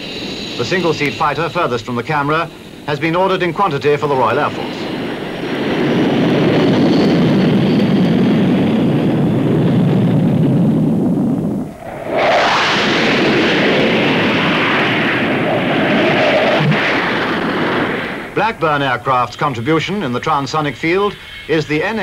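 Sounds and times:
jet engine rumble: 0:00.0 - 0:22.0
high-pitched jet sound: 0:11.6 - 0:18.8.

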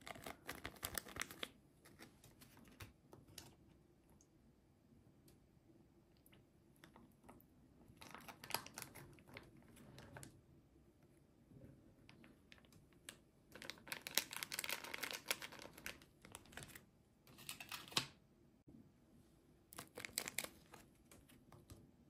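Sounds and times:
soggy packaging crinkling in water: 0:13.5 - 0:16.8, 0:19.8 - 0:20.8.

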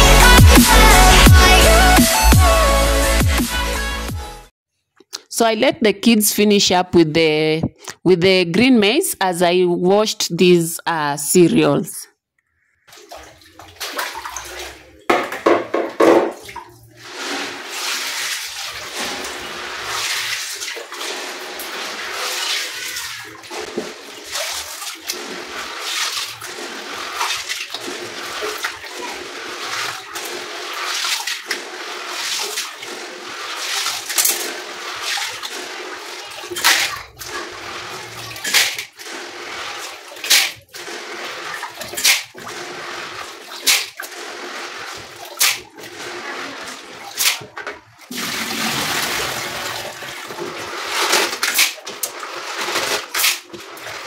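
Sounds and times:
water sloshing and splashing: 0:12.4 - 0:54.0.

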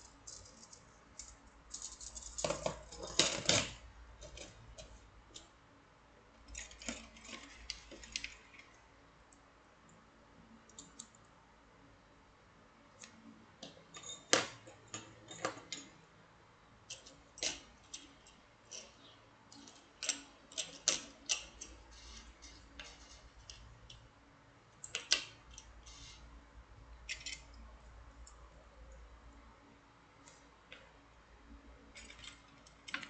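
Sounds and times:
metal wire puzzles clinking: 0:00.0 - 0:04.6.

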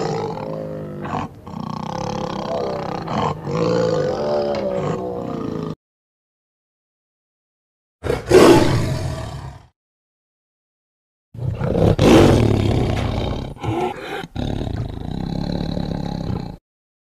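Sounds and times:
tiger roaring: 0:00.0 - 0:05.8, 0:08.0 - 0:09.7, 0:11.4 - 0:16.6.

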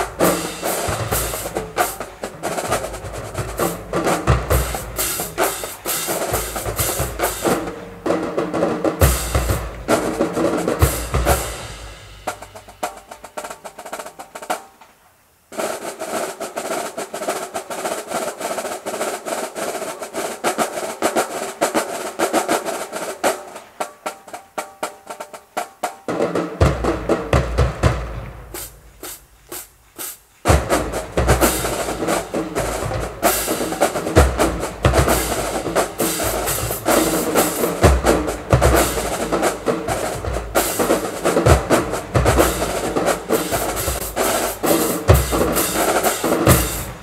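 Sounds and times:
bass drums: 0:00.0 - 0:08.3, 0:08.9 - 0:13.4, 0:26.6 - 0:47.0
snare drums: 0:00.0 - 0:47.0.

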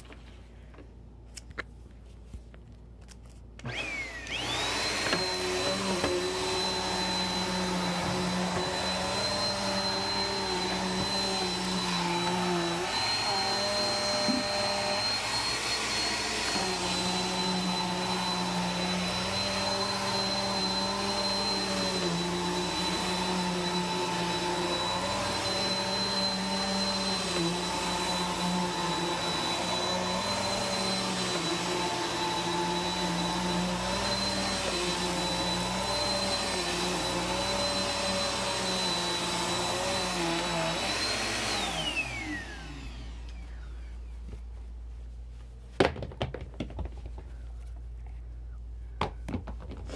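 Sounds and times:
vacuum cleaner motor running: 0:03.6 - 0:44.2.

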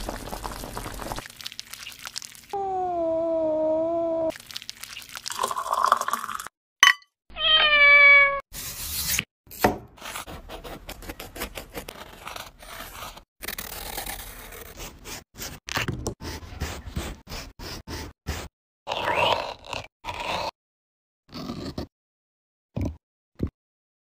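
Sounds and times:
cat meowing: 0:07.3 - 0:08.4
knife cutting melon rind: 0:08.6 - 0:15.0.

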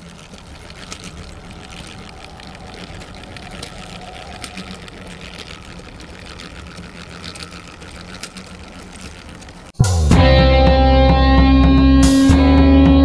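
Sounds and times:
continuous whirr: 0:00.0 - 0:09.8.

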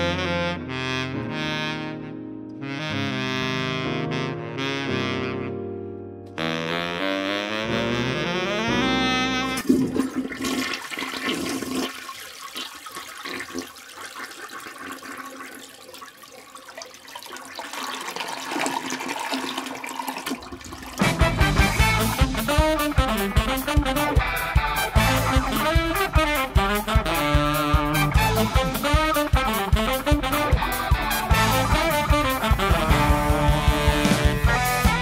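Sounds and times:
brass-led music: 0:00.0 - 0:10.0, 0:21.0 - 0:35.0
toilet flushing: 0:09.5 - 0:23.8.

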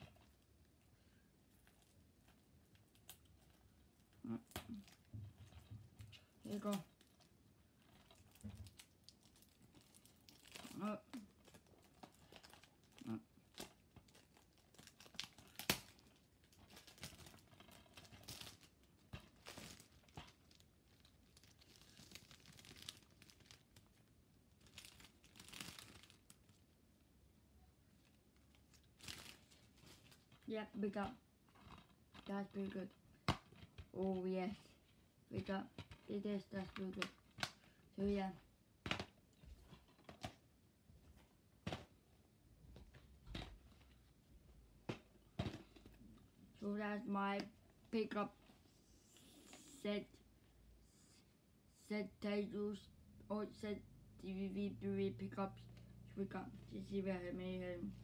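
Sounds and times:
plastic wrap crinkling and tearing: 0:06.1 - 0:26.8, 0:28.0 - 0:30.5.

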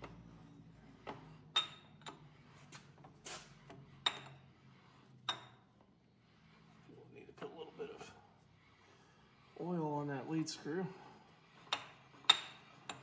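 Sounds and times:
metal vise clicking and clanking: 0:11.6 - 0:13.0.

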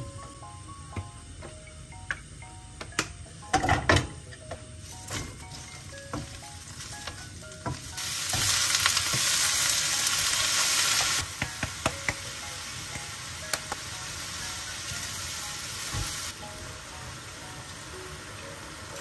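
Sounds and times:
vegetables sizzling in wok: 0:04.6 - 0:19.0.

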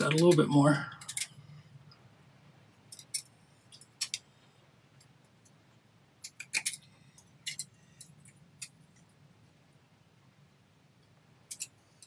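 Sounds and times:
metal bracelet clicking: 0:01.0 - 0:01.4, 0:06.2 - 0:08.8, 0:11.5 - 0:11.8.

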